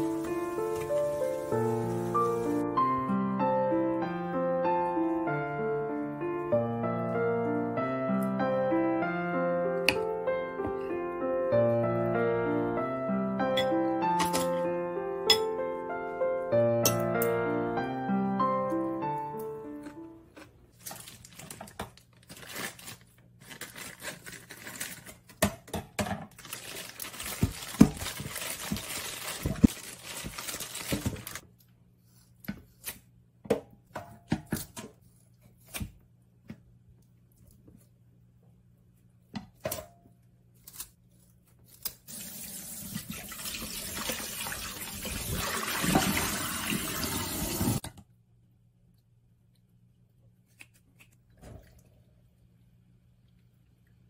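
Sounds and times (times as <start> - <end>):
tap water splashing in a sink: 42.2 - 47.9.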